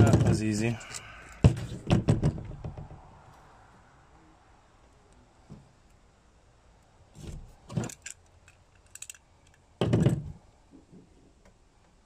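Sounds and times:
metal bracket knocks and clunks: 0:00.0 - 0:03.1, 0:09.8 - 0:10.4.

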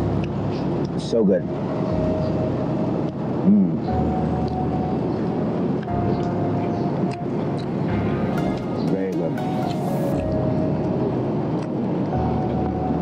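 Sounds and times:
city traffic rumble: 0:00.0 - 0:13.0
faint steady tone shifting pitch: 0:00.0 - 0:13.0
rising and falling hum: 0:00.0 - 0:13.0.

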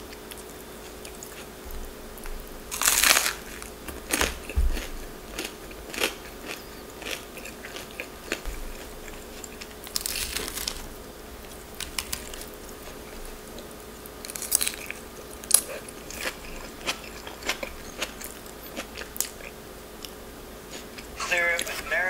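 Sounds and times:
chewing: 0:00.0 - 0:21.9
crunchy bite of lettuce: 0:02.7 - 0:13.2, 0:14.1 - 0:19.6.

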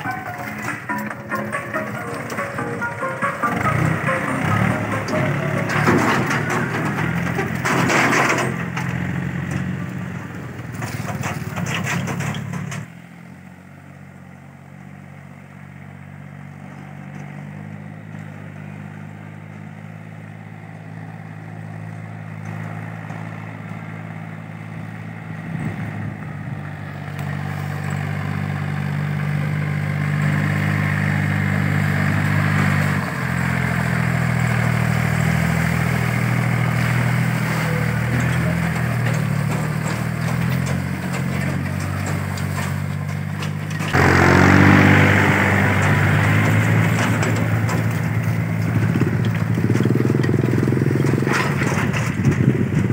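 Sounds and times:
trailer clatter: 0:00.0 - 0:13.0, 0:25.6 - 0:52.9
tractor diesel engine running: 0:00.0 - 0:52.9.

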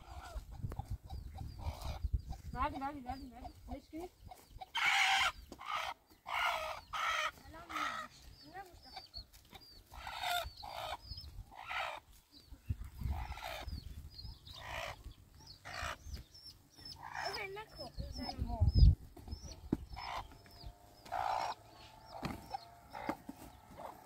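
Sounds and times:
hen squawking and clucking: 0:00.0 - 0:24.0.

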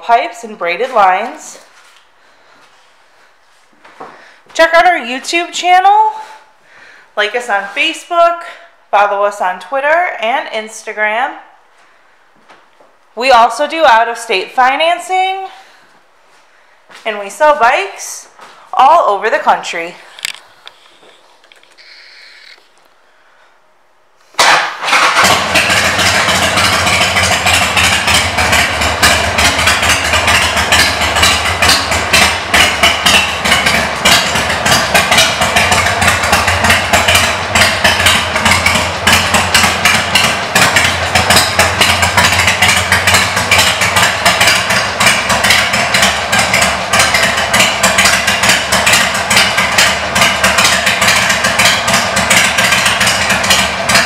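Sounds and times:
motorcycle engine starting and idling: 0:24.4 - 0:54.0.

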